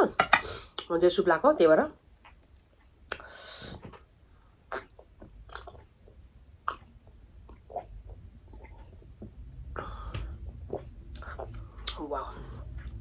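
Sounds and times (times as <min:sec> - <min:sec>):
person chewing: 0:04.7 - 0:09.0
breathy sound: 0:09.7 - 0:10.4.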